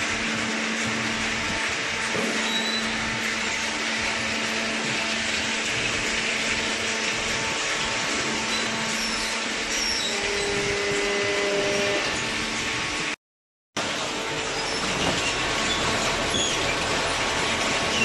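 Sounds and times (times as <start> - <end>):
baling machinery whirring: 0.0 - 13.2.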